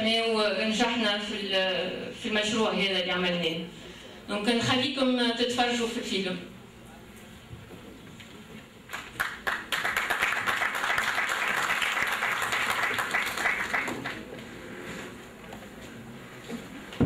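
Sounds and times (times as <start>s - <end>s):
audience applauding: 8.9s - 14.3s.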